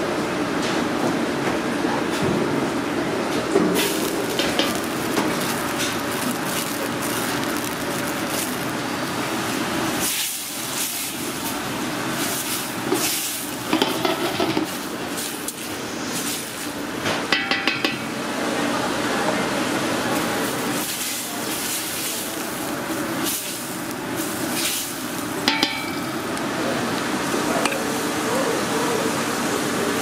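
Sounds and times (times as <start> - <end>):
onions sizzling in a pot: 3.8 - 18.4, 19.5 - 29.8
wooden spoon knocking on pot: 17.3 - 18.0, 25.5 - 26.1.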